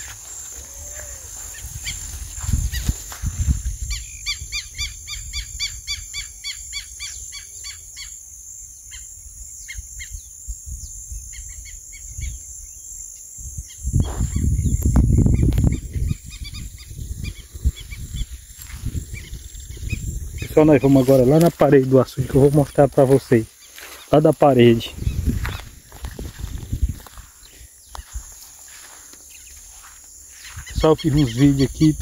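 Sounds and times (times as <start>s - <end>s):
low rumble on microphone: 13.4s - 21.3s, 24.9s - 27.3s.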